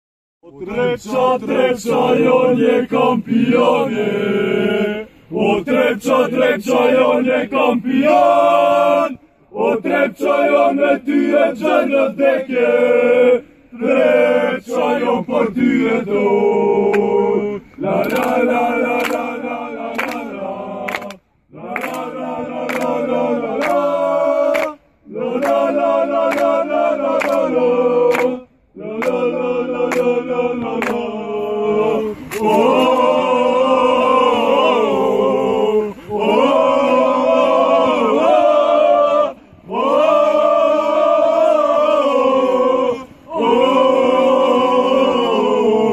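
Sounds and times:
crowd chanting in unison: 0:00.5 - 0:45.9.

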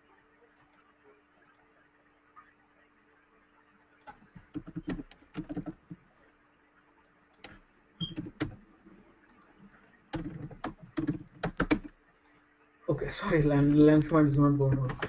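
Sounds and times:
computer keyboard typing: 0:04.4 - 0:06.0, 0:07.4 - 0:08.6, 0:10.1 - 0:12.0, 0:14.6 - 0:15.0.

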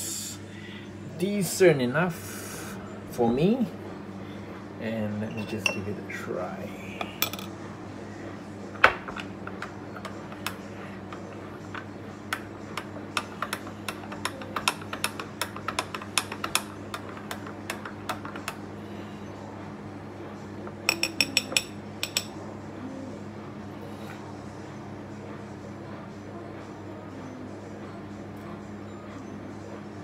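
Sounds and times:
teaspoon clinking against glass: 0:20.9 - 0:22.3.

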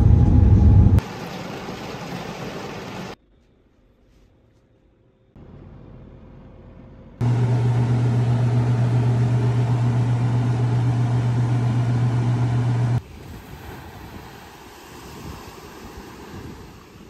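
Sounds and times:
appliance motor humming: 0:07.2 - 0:13.0
faint wind: 0:13.0 - 0:17.0.

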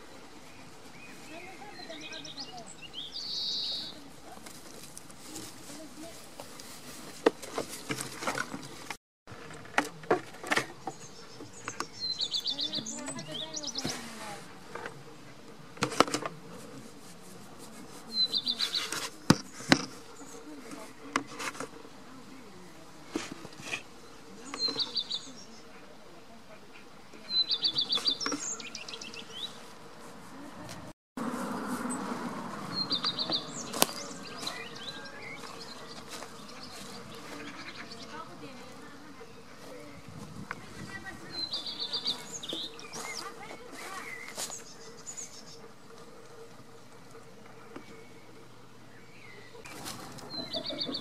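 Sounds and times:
songbird singing: 0:00.0 - 0:06.2, 0:10.4 - 0:15.6, 0:18.0 - 0:22.8, 0:23.5 - 0:30.4, 0:31.3 - 0:51.0
small birds chirping: 0:00.0 - 0:06.7, 0:10.6 - 0:14.8, 0:17.6 - 0:22.7, 0:23.6 - 0:25.9, 0:26.6 - 0:30.5, 0:32.6 - 0:51.0.

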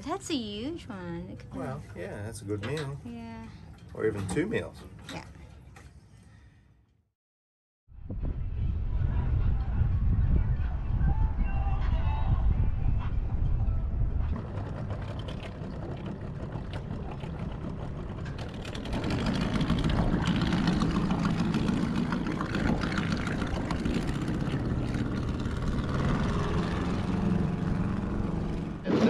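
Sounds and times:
outboard motor running: 0:14.2 - 0:29.0.

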